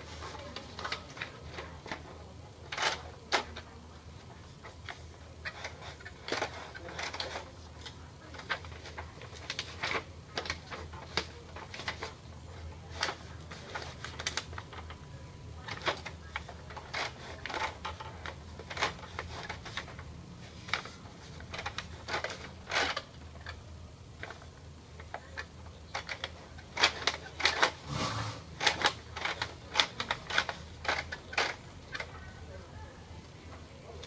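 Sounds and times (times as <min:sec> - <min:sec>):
paper rustling: 0:04.9 - 0:15.0.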